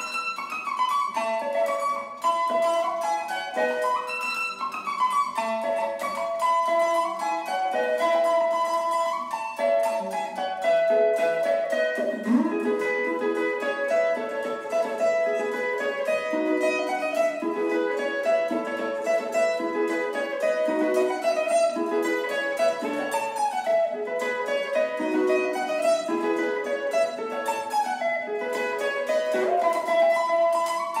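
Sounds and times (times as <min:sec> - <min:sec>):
clean electric guitar melody: 0:05.6 - 0:31.0.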